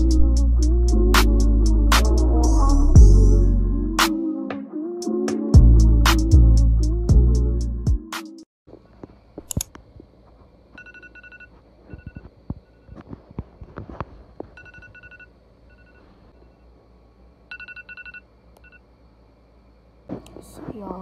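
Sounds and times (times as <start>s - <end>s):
phone alarm beeping: 10.8s - 13.0s, 14.6s - 16.6s, 17.5s - 18.8s.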